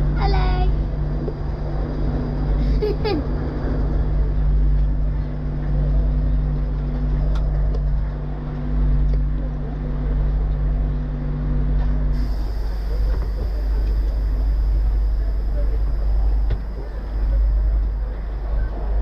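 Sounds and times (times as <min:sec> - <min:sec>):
street traffic rumble: 0:00.0 - 0:19.0
tram equipment hum: 0:00.0 - 0:19.0
passengers murmuring: 0:12.2 - 0:19.0.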